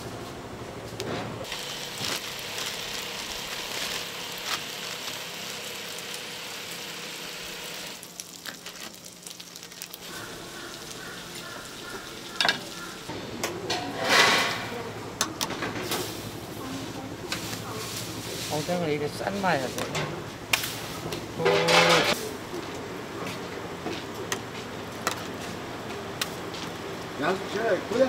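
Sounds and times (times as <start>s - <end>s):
plastic packaging crinkling: 1.6s - 5.5s, 8.0s - 10.3s.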